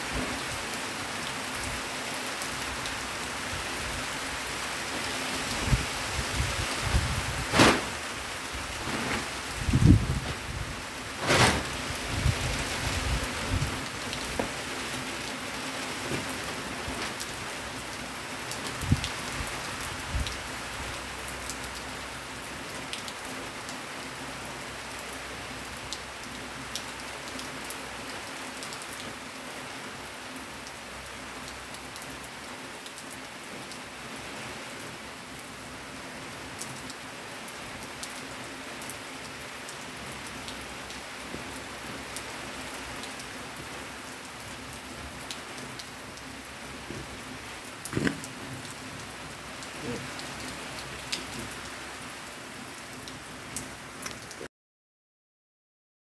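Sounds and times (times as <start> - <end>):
steady rainfall: 0.0 - 54.5
sharp thump: 7.5 - 8.0.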